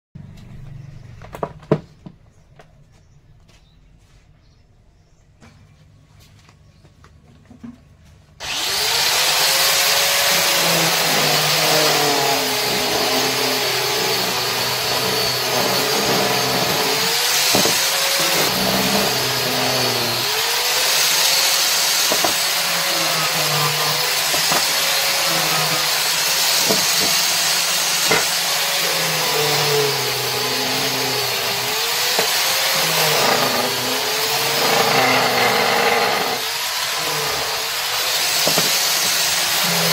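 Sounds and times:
power tool cutting wood: 8.4s - 39.9s.

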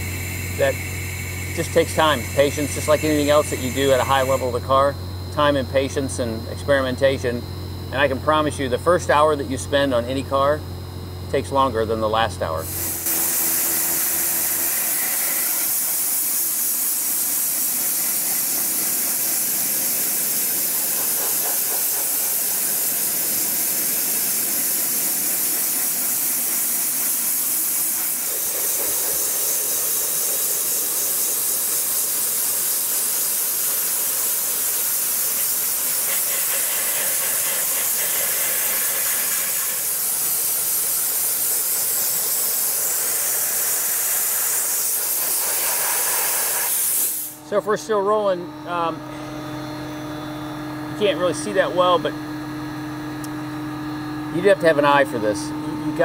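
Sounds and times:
dry ice blasting gun hissing: 0.0s - 5.9s, 12.5s - 47.7s.

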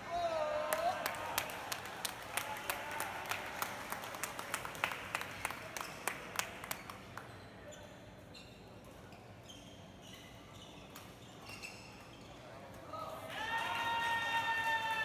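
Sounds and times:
hand clapping: 0.7s - 7.3s
shoe soles squeaking on floor: 7.3s - 12.5s.

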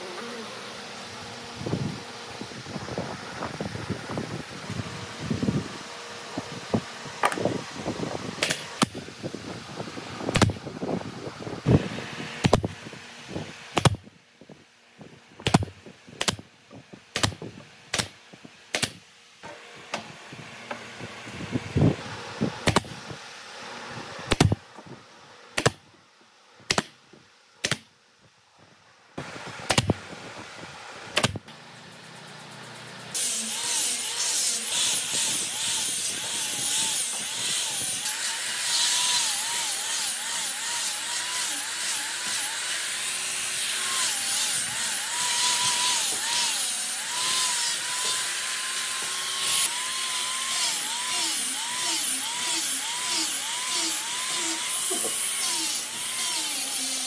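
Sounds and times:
nail gun firing: 8.4s - 9.0s, 10.3s - 10.6s, 12.4s - 12.7s, 15.4s - 16.4s, 17.2s - 19.0s, 22.6s - 23.0s, 24.3s - 24.6s, 25.6s - 25.8s, 27.6s - 27.9s, 29.7s - 30.0s, 31.2s - 31.4s
angle grinder whining: 32.1s - 57.0s.

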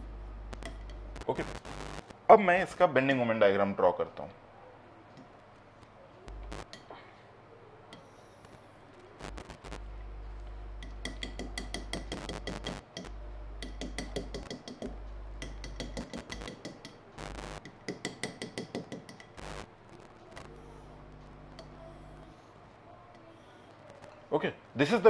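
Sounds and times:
low electrical hum: 0.0s - 25.0s
chalk tapping on blackboard: 10.8s - 17.0s, 17.6s - 19.4s.

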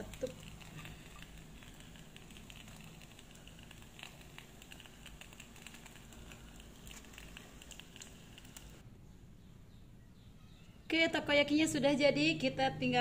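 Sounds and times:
hot oil crackling and popping: 0.0s - 8.8s.

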